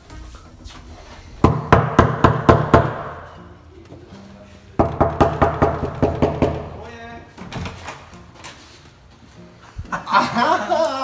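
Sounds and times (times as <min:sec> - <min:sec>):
quick knocking on a door: 0:01.4 - 0:03.2, 0:04.8 - 0:06.8.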